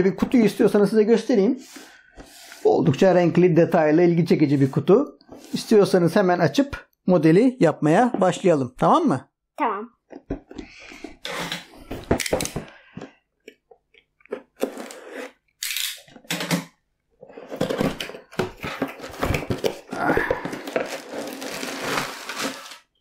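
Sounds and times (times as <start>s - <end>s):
cardboard and packaging rustling: 17.2s - 23.0s.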